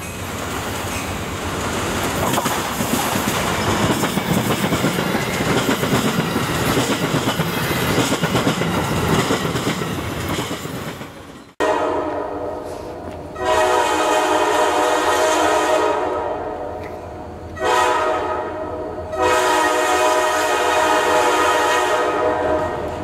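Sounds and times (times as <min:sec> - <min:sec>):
train wheels rattling on rails: 0:00.0 - 0:11.6
train horn: 0:11.6 - 0:23.0.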